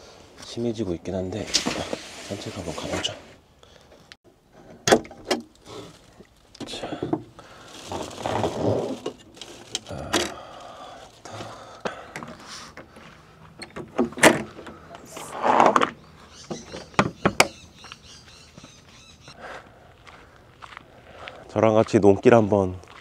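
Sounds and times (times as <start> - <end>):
short sliding and rustling: 1.4 - 3.4
camper door and latches clunking: 4.8 - 5.5, 13.6 - 15.8.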